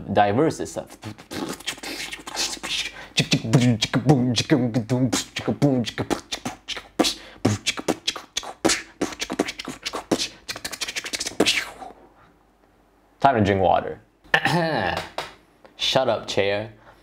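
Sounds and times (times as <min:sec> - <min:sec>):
clicking mouth percussion: 0:01.0 - 0:04.2, 0:04.8 - 0:11.9.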